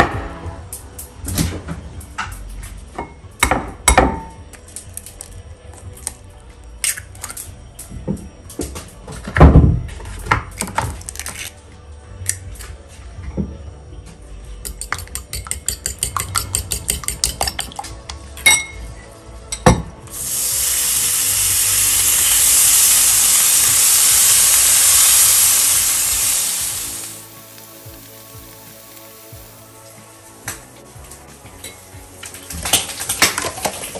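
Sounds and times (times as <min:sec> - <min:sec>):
fork beating egg in bowl: 0:14.7 - 0:17.8
bacon sizzling in frying pan: 0:20.1 - 0:30.5.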